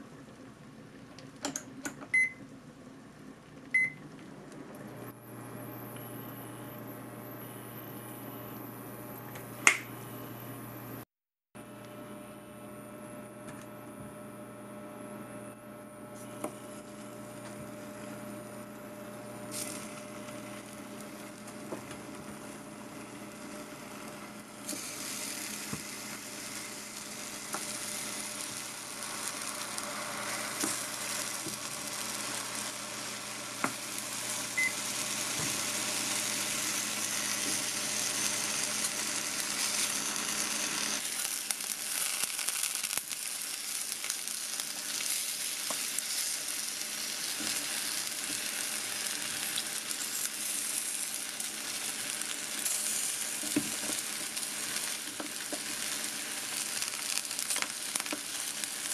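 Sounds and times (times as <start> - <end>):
oil sizzling in a pan: 16.6 - 58.9.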